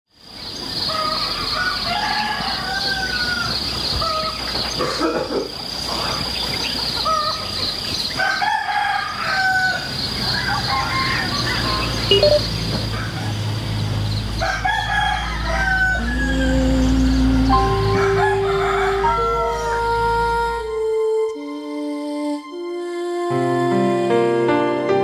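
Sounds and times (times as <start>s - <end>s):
roosters crowing: 0.7s - 20.4s
high-pitched pulsing drone: 12.1s - 12.5s.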